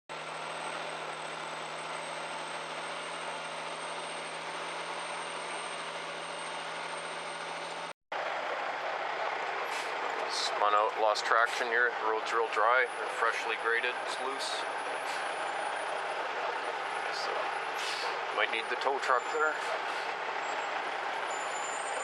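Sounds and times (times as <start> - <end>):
diesel truck engine running: 0.1 - 22.0
road noise: 0.1 - 22.0.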